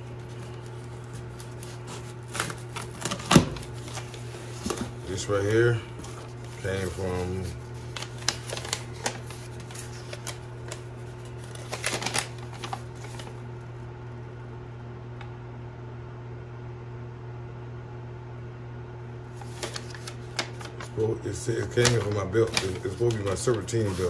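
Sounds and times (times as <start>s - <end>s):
paper crinkling and rustling: 0.0s - 13.4s, 19.3s - 24.0s
low background hum: 0.0s - 24.0s.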